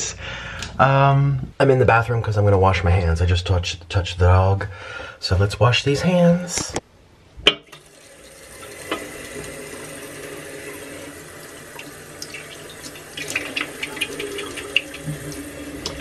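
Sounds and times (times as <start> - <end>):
hands washing with splashes: 7.8 - 16.0
tap running into a sink: 8.5 - 9.7, 11.8 - 16.0.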